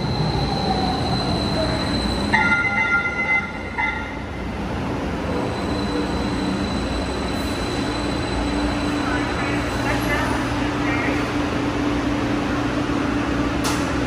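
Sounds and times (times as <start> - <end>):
faint high wheel squeal: 0.0 - 3.6, 5.3 - 9.6
train rolling hum: 0.0 - 14.0.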